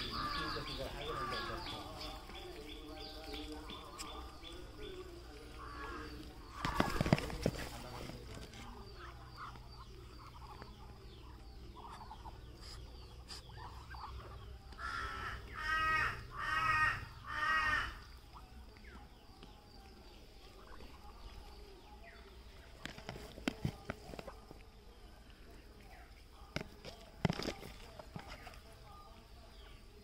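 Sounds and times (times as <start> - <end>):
crow cawing: 14.8 - 18.0.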